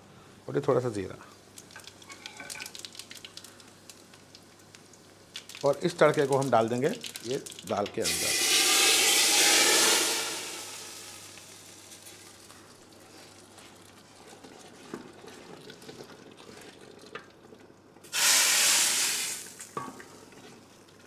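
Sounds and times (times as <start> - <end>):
hot oil sizzling: 1.5 - 14.1, 18.0 - 20.3.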